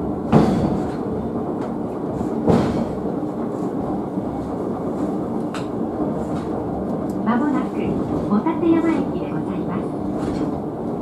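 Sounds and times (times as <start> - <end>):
funicular car rumbling on rails: 0.0 - 11.0
sharp clunk: 2.5 - 3.0.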